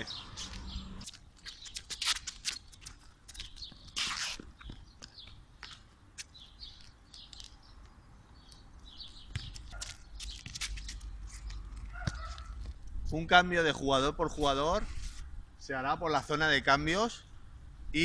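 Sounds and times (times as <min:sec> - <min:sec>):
small birds chirping: 0:00.0 - 0:12.7
scuff: 0:00.4 - 0:07.6, 0:09.0 - 0:12.8.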